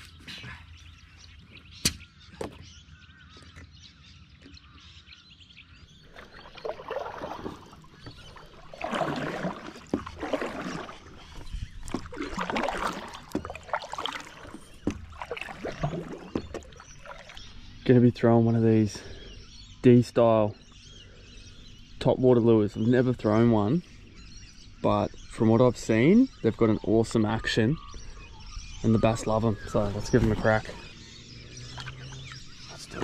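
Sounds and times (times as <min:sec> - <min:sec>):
paddle splashing through water: 0:05.9 - 0:17.7, 0:29.2 - 0:33.0.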